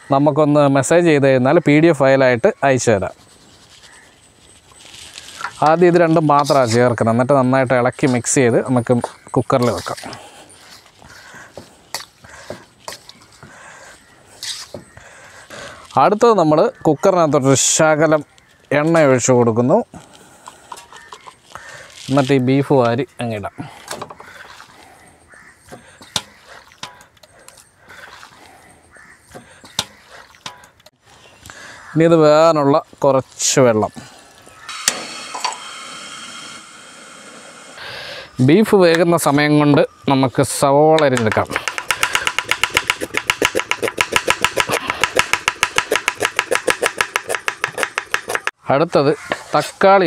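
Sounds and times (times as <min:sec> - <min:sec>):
knife tapping on a wooden board: 0:41.2 - 0:48.5.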